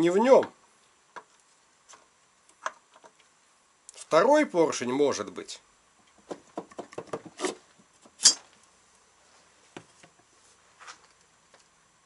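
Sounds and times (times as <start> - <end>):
sharp metallic clink: 8.2 - 8.4.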